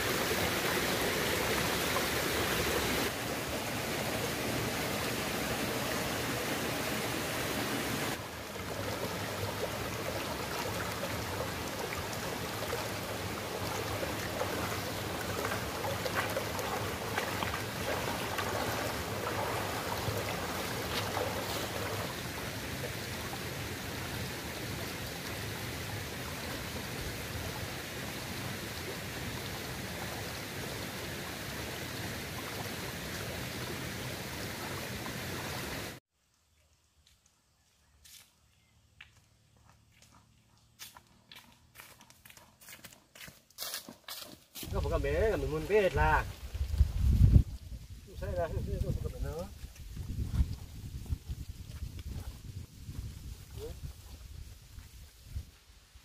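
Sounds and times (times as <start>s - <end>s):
stream running over rocks: 0.0s - 37.2s, 44.6s - 55.4s
feet wading through water: 8.1s - 23.4s.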